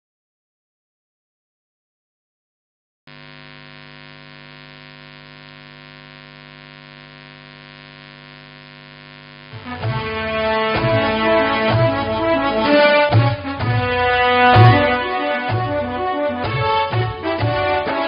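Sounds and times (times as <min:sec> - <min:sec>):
electrical mains hum: 0:03.1 - 0:09.6.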